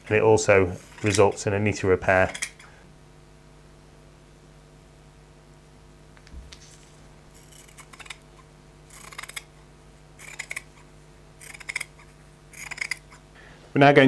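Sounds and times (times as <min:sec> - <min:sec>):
shears snipping fabric: 0:06.5 - 0:09.5, 0:10.2 - 0:13.2.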